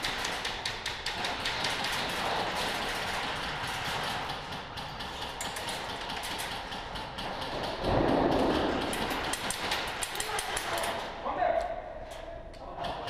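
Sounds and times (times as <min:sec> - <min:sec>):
airsoft guns firing: 0:07.0 - 0:11.2.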